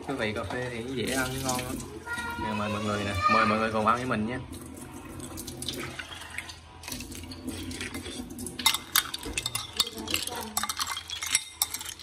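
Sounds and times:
spoon stirring ice in glass: 0:05.3 - 0:12.0
ice and spoon clinking glass: 0:07.3 - 0:12.0.

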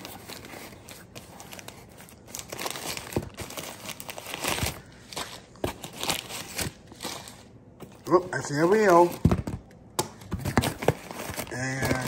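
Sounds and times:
newspaper crinkling and rustling: 0:00.0 - 0:09.4, 0:10.4 - 0:12.0.

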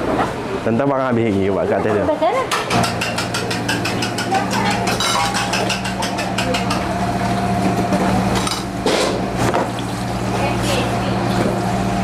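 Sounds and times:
metal spatula clattering on wok: 0:02.5 - 0:07.0.

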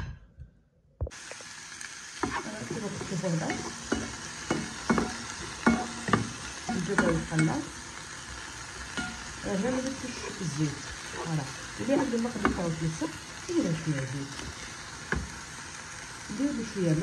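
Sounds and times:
chicken sizzling in a frying pan: 0:01.1 - 0:17.0
wooden spatula scraping a pan: 0:02.2 - 0:06.4.

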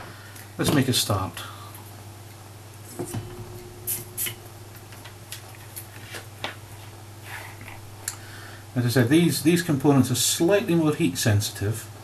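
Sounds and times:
low hum: 0:02.8 - 0:08.6.

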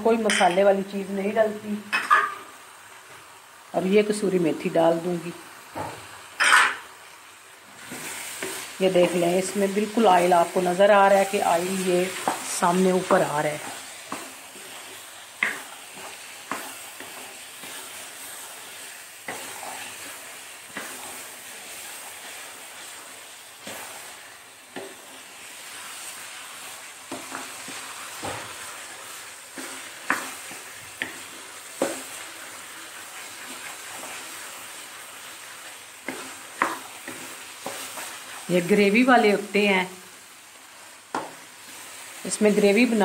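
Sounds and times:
masala sizzling in oil: 0:00.0 - 0:43.0
wooden spoon scraping a pan: 0:07.8 - 0:39.2.

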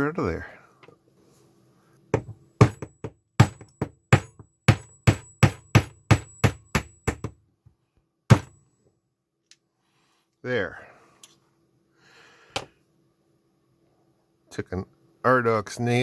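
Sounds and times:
hammer tapping metal punch: 0:02.2 - 0:07.4, 0:08.3 - 0:08.6.

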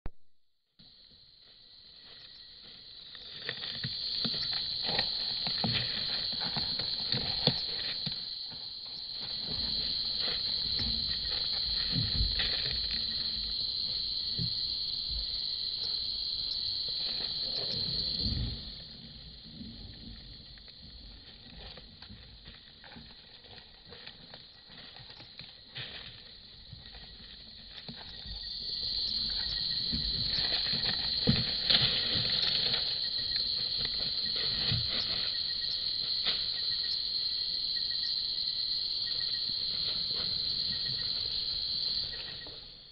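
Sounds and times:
insect chorus trilling: 0:00.8 - 0:42.9
elephant rustling and thumping: 0:03.3 - 0:13.6, 0:21.0 - 0:36.7.

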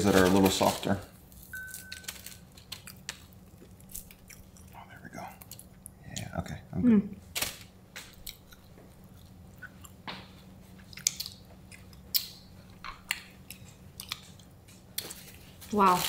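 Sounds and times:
chewing crunchy pork rinds: 0:00.0 - 0:06.6, 0:08.1 - 0:16.0.

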